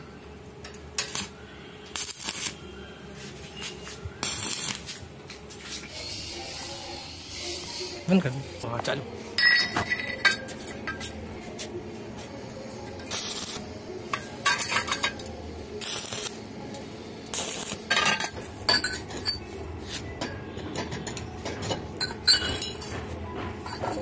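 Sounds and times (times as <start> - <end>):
metal tubes clinking: 9.4 - 11.1, 14.1 - 16.3, 17.4 - 19.5, 20.2 - 23.0.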